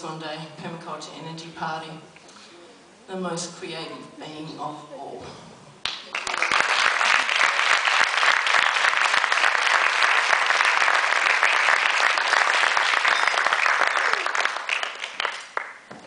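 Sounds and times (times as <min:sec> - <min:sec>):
audience applauding: 0:05.8 - 0:15.9.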